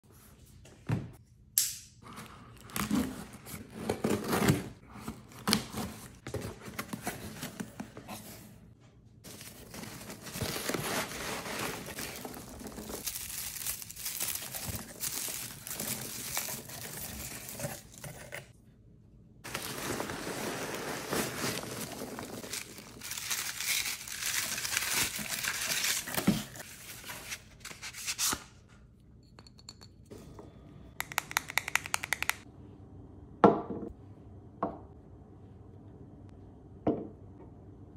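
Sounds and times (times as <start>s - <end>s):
packing peanuts rustling: 9.3s - 18.0s, 19.5s - 27.3s.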